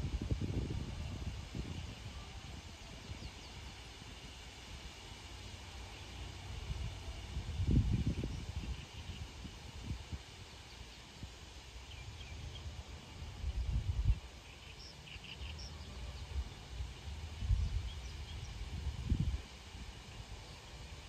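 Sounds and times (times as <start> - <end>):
wind buffeting microphone: 0.0 - 3.5, 6.5 - 10.3, 17.1 - 20.1.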